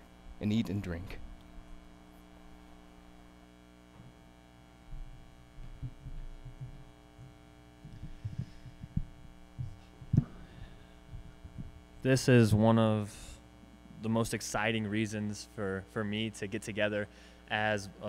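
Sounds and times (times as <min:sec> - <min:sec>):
electrical mains hum: 0:00.0 - 0:18.0
footsteps on a stage: 0:04.9 - 0:10.5
microphone handling bump: 0:04.9 - 0:11.9.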